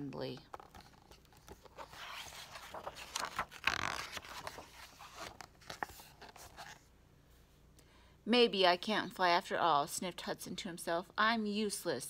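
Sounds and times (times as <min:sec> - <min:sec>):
paper page turning: 0:00.5 - 0:06.9.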